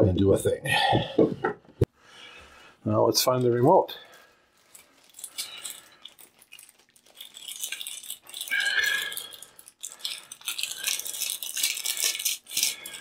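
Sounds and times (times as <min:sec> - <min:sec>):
plastic rattling and crinkling: 0:04.6 - 0:13.0.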